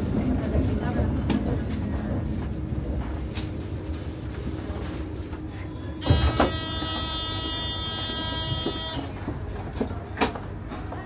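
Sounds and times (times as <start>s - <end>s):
tram rumbling: 0.0s - 11.0s
buzzing warning tone: 6.0s - 9.2s.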